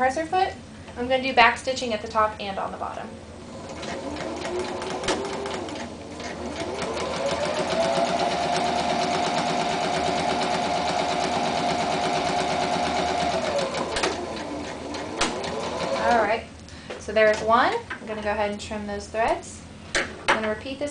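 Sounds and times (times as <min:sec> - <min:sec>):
sewing machine stitching: 0:03.5 - 0:16.3.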